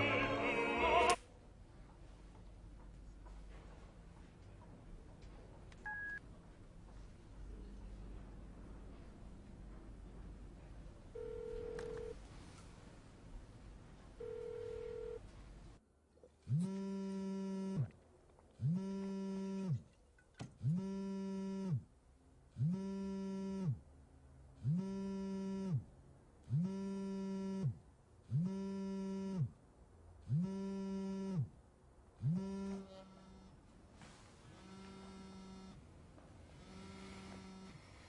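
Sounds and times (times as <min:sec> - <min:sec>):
steady phone tone: 0:11.2 - 0:12.2, 0:14.2 - 0:15.2
phone vibrating buzzes: 0:14.2 - 0:15.2, 0:16.4 - 0:17.9, 0:18.6 - 0:19.8, 0:20.6 - 0:21.9, 0:22.6 - 0:23.8, 0:24.6 - 0:25.9, 0:26.5 - 0:29.6, 0:30.2 - 0:31.6, 0:32.2 - 0:33.6, 0:34.6 - 0:35.8, 0:36.5 - 0:38.0.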